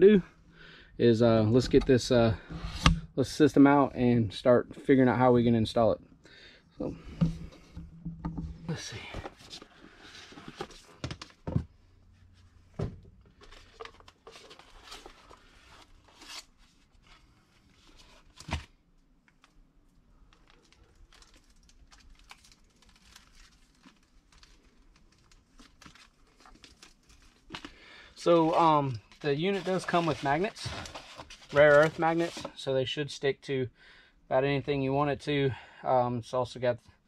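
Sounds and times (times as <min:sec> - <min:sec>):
cardboard box rustling and crinkling: 0:28.3 - 0:32.5.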